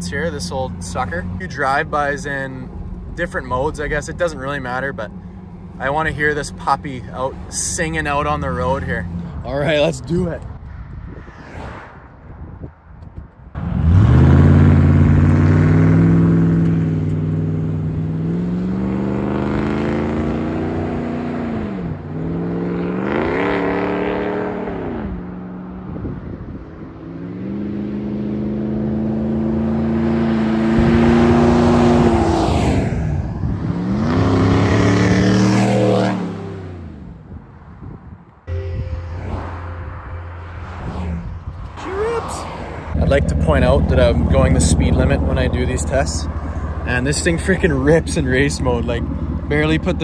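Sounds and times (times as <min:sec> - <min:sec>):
truck engine accelerating: 0:13.5 - 0:37.4, 0:38.5 - 0:50.0.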